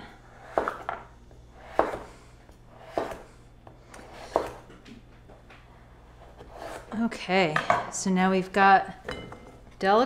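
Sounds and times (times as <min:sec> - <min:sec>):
knife slicing squash: 0:00.4 - 0:02.2, 0:02.8 - 0:04.7, 0:06.1 - 0:07.0.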